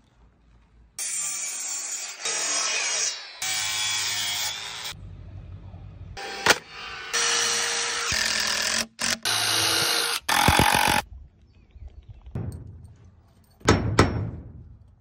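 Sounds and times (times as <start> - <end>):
drill driving screws into wood: 6.4 - 11.0
sharp knocks: 13.6 - 14.8.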